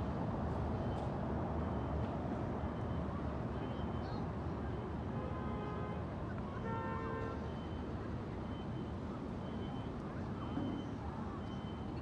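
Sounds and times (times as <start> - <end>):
busy outdoor square: 0.0 - 12.0
faint high beep: 7.5 - 12.0.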